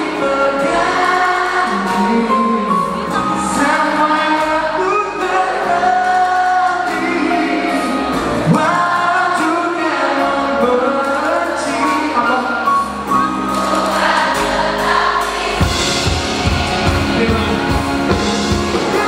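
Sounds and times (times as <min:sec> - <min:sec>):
person singing: 0:00.0 - 0:13.0, 0:15.6 - 0:19.0
instrumental backing: 0:00.0 - 0:19.0.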